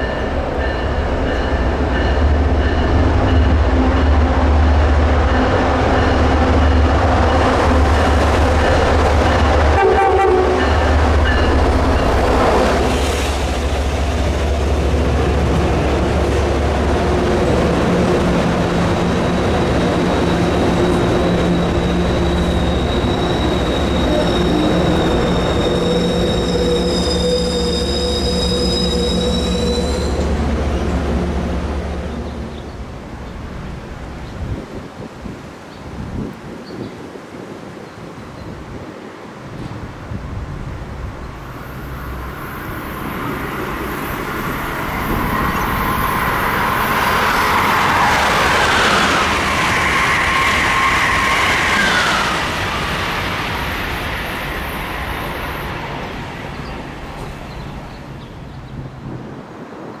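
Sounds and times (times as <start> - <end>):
train rumbling over rails: 0.0 - 60.0
high brake squeal: 20.2 - 30.4.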